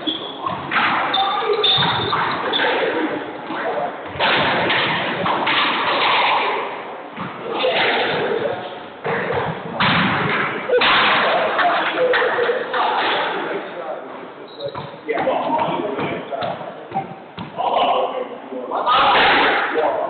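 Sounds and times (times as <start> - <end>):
voices in background: 0.0 - 20.0
squash ball thudding: 0.4 - 12.3, 14.7 - 17.7.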